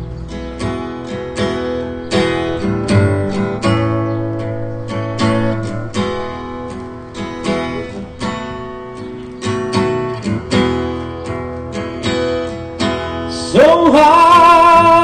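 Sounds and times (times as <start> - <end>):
acoustic guitar strumming chords: 0.0 - 15.0.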